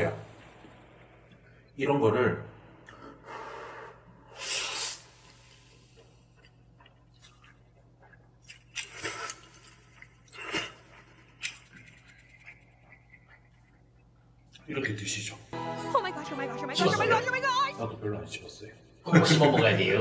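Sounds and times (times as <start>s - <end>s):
man slurping noodles: 4.3s - 6.1s, 8.8s - 11.0s.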